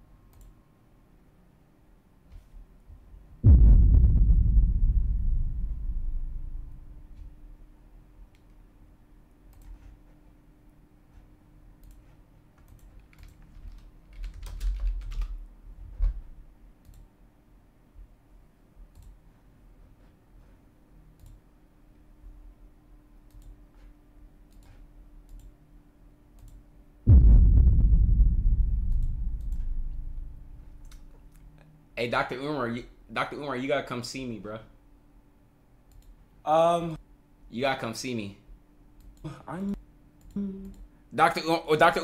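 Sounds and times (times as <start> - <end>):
low steady hum: 0.0 - 42.0
loud low boom: 3.4 - 7.2, 27.1 - 30.8
keyboard and mouse clicks: 9.5 - 9.9, 11.8 - 15.4, 23.3 - 23.6, 24.5 - 25.5, 26.4 - 26.6, 35.9 - 36.2.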